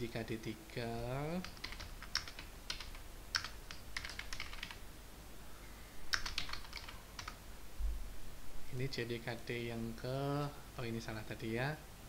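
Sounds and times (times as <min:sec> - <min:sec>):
computer keyboard typing: 0:01.4 - 0:04.8, 0:06.1 - 0:07.4.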